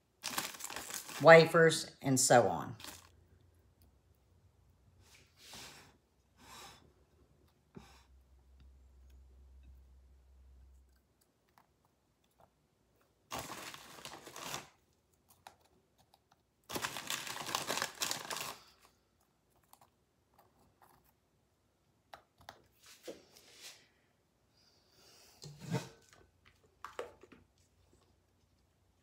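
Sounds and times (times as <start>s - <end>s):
package crinkling: 0.2s - 1.6s, 2.8s - 3.1s, 13.3s - 14.8s, 16.7s - 18.9s.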